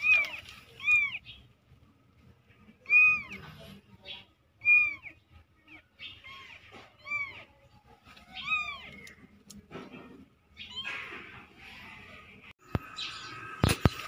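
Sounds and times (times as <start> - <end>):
kittens meowing: 0.0 - 1.4, 2.6 - 9.4, 10.6 - 12.4.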